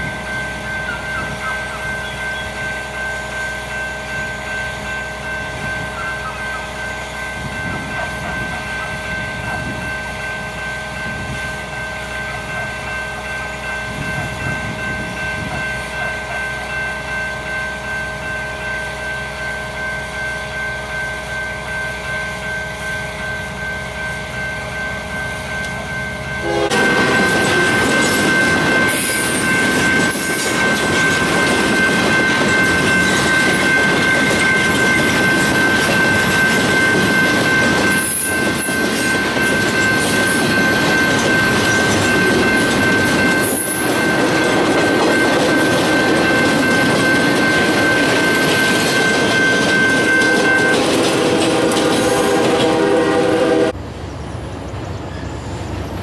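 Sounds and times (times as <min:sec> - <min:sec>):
locomotive engine drone: 0:00.0 - 0:56.0
train wheels rumbling on track: 0:00.0 - 0:56.0.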